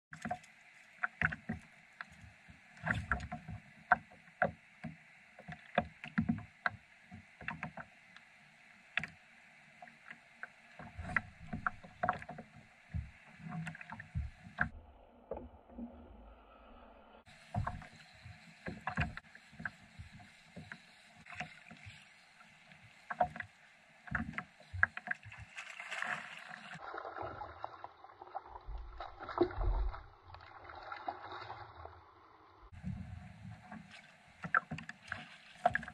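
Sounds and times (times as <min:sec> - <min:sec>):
waves slapping kayak hull: 0:10.8 - 0:14.7, 0:17.3 - 0:31.6, 0:32.7 - 0:35.9
knocks and thumps from boat: 0:10.9 - 0:14.7, 0:17.5 - 0:20.8, 0:32.7 - 0:35.9.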